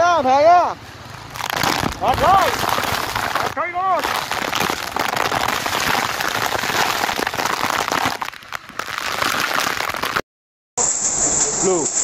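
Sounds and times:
heavy rain and hail pelting: 1.4 - 10.2.

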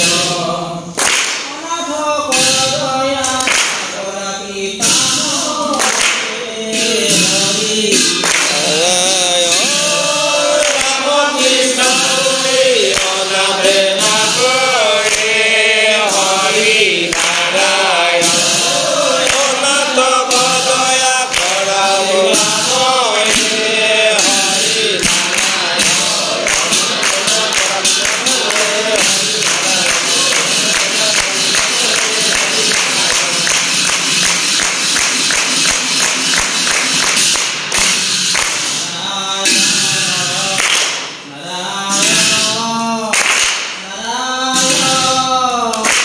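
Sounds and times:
men chanting together: 0.0 - 34.9, 38.7 - 46.0
sharp strikes keeping time: 4.8 - 39.0.

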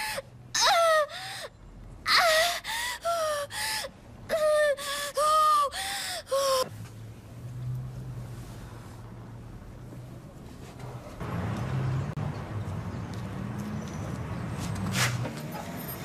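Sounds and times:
girl gasping in pain: 0.0 - 1.5, 2.1 - 6.7.

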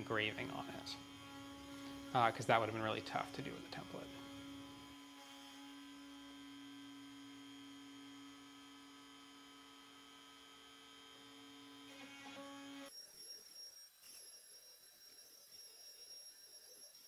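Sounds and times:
router motor humming: 0.0 - 12.9.

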